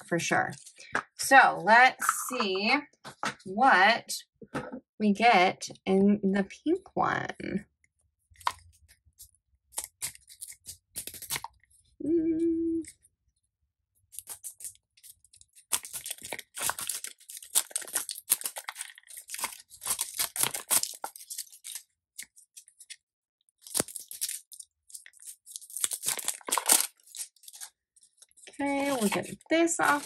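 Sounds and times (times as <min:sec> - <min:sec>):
plastic wrapping being torn: 0:09.8 - 0:11.6, 0:14.1 - 0:23.0, 0:23.6 - 0:30.0.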